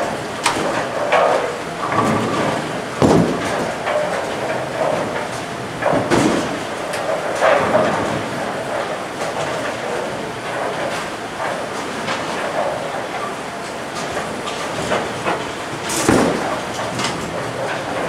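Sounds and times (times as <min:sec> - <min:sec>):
bowling balls rolling: 0:00.6 - 0:10.7.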